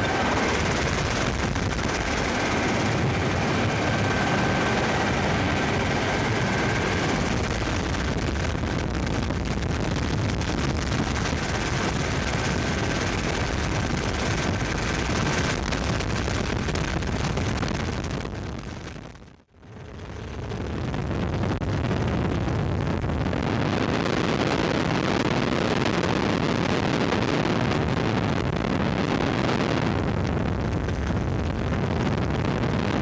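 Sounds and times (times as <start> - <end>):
helicopter turbine and rotor: 0.0 - 8.9, 10.4 - 16.7, 19.6 - 20.7.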